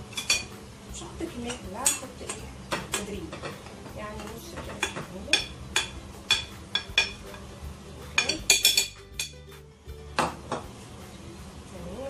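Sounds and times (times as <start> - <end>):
spoon tapping glass bowl: 4.8 - 7.4, 8.2 - 9.4.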